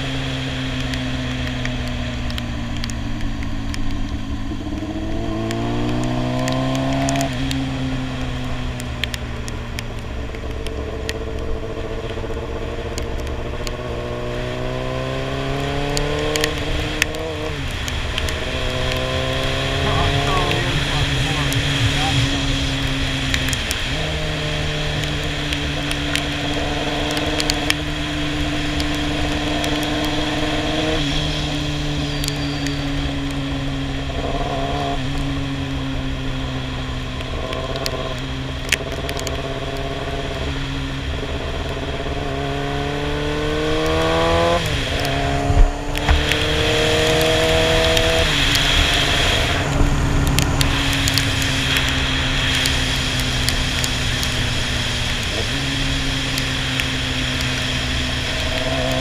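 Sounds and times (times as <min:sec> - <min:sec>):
motorcycle engine revving: 0:00.0 - 0:59.0
wind rush: 0:16.5 - 0:25.8, 0:43.9 - 0:53.4.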